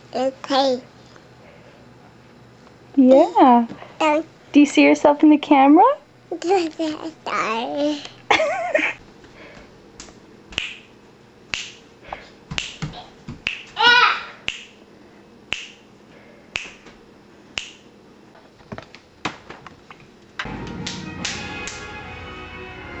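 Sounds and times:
finger snaps: 0:10.0 - 0:10.9, 0:11.5 - 0:11.8, 0:12.6 - 0:13.8, 0:14.5 - 0:14.8, 0:15.5 - 0:15.8, 0:16.5 - 0:17.0, 0:17.6 - 0:17.9, 0:20.8 - 0:21.8
toddler squealing: 0:13.8 - 0:14.3.

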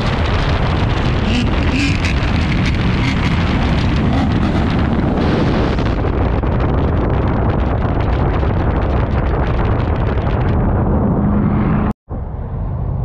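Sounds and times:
wind noise on microphone: 0:00.0 - 0:13.0
car engine revving loud: 0:01.1 - 0:05.6.

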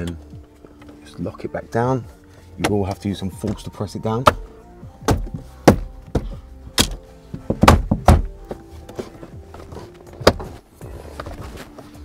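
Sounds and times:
plastic trim thunks into clips: 0:05.0 - 0:08.4.

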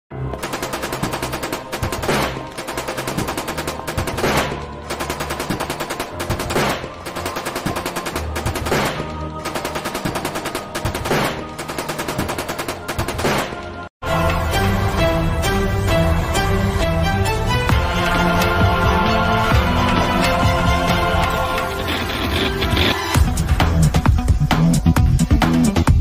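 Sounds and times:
machine gun automatic fire: 0:00.4 - 0:13.6.

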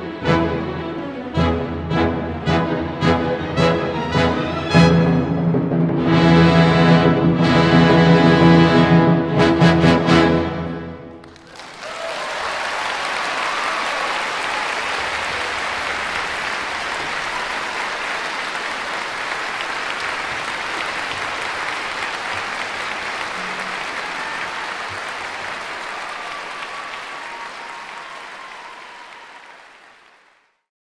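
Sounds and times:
crowd applauding: 0:11.2 - 0:30.7.

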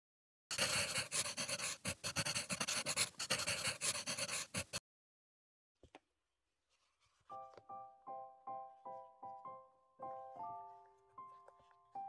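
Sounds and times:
pen scratching on paper: 0:00.5 - 0:04.8.

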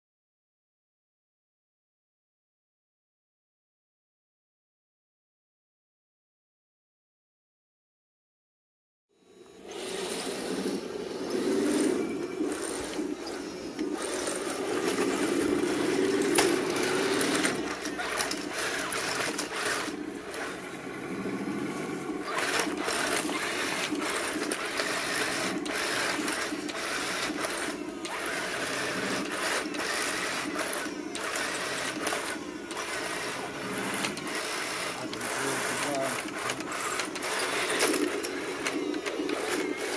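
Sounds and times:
toy tank motors whining: 0:09.3 - 0:39.9.

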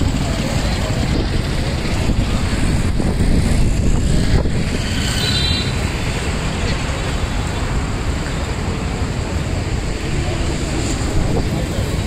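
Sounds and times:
wind buffeting microphone: 0:00.0 - 0:05.1, 0:09.0 - 0:12.0
vehicle rumble: 0:00.0 - 0:12.0.

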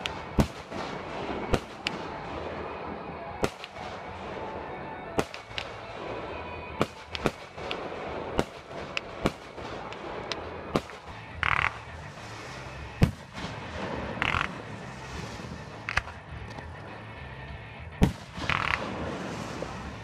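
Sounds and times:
fireworks bursting bangs: 0:00.0 - 0:04.6, 0:05.2 - 0:16.2, 0:18.0 - 0:20.0.

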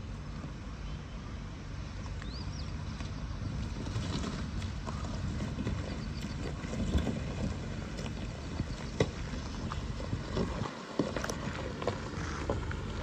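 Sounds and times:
vehicle engine low rumble: 0:00.0 - 0:13.0
wind buffeting microphone: 0:03.0 - 0:13.0.

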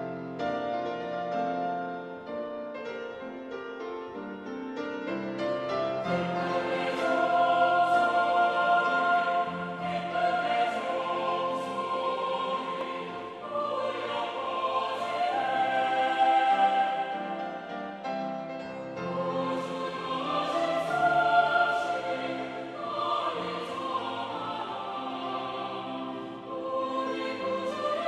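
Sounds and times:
piano accompaniment: 0:00.0 - 0:28.0
mixed choir singing: 0:05.9 - 0:28.0.

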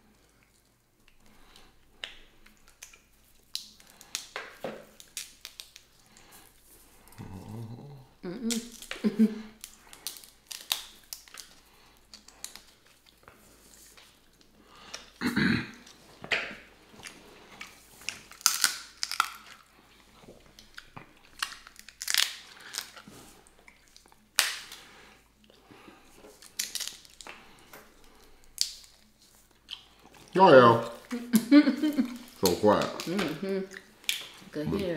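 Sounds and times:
wet chewing: 0:00.0 - 0:34.9
crab shells cracking: 0:00.4 - 0:06.3, 0:08.5 - 0:13.3, 0:17.6 - 0:19.8, 0:20.5 - 0:24.9, 0:26.3 - 0:30.2, 0:31.2 - 0:34.5.

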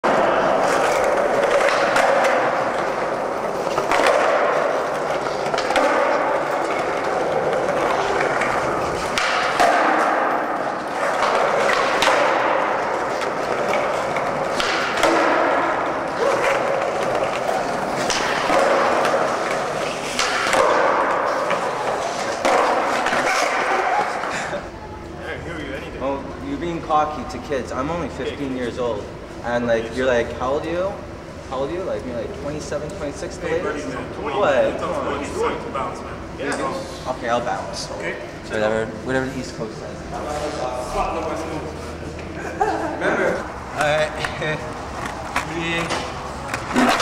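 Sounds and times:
skateboard clacking on floor: 0:00.1 - 0:24.1.

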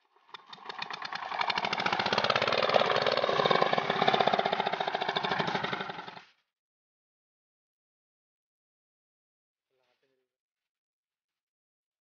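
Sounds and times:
diesel engine chugging: 0:00.3 - 0:06.2.

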